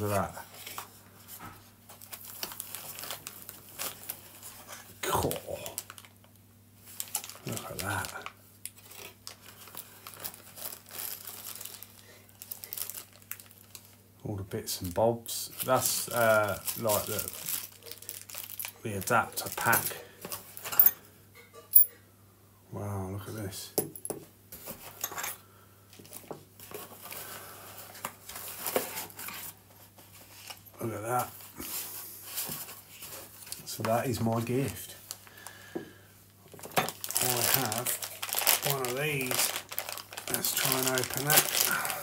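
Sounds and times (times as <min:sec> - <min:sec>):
plastic packaging rustling: 0:00.0 - 0:14.0, 0:15.5 - 0:20.9, 0:25.9 - 0:35.7, 0:36.4 - 0:42.0
plastic bag crinkling: 0:01.9 - 0:14.0, 0:15.6 - 0:20.8, 0:36.5 - 0:42.0
small metal parts clinking: 0:20.6 - 0:21.0, 0:21.6 - 0:21.9.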